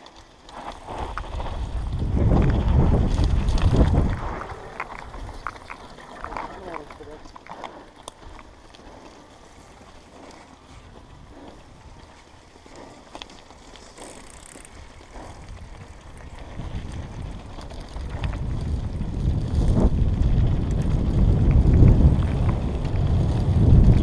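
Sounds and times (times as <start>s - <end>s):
bike rattles and clicks: 0.0s - 24.0s
bike tyre rumble on dirt: 0.0s - 24.0s
wind on microphone: 0.9s - 6.8s, 14.6s - 24.0s.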